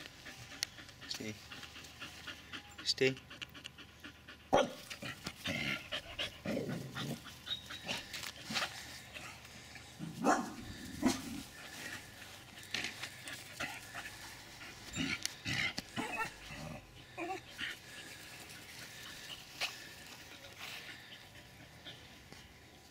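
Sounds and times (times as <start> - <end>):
dogs barking: 4.5 - 8.6, 10.1 - 11.9, 14.8 - 17.8.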